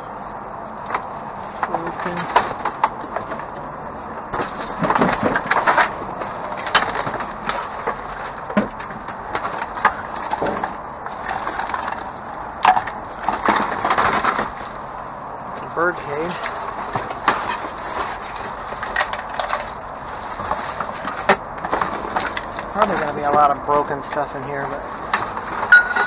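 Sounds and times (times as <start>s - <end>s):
objects knocking and clattering: 0.8s - 3.7s, 4.3s - 14.8s, 15.5s - 26.0s.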